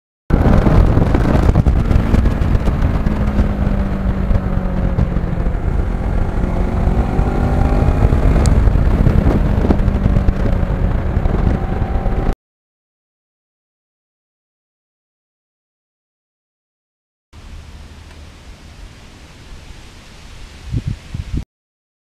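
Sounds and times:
motorcycle engine running: 0:00.3 - 0:12.4
wind rush on microphone: 0:00.3 - 0:12.4, 0:19.6 - 0:21.5.

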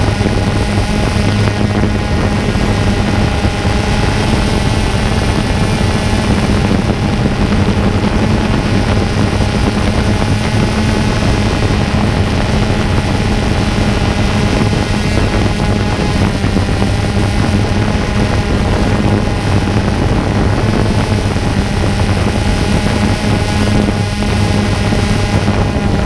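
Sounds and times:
drone propellers buzzing: 0:00.0 - 0:26.0.

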